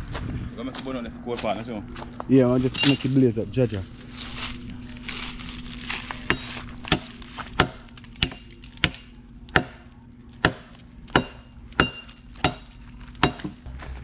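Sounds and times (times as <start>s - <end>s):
blade chopping wood: 6.2s - 9.8s, 10.4s - 13.6s.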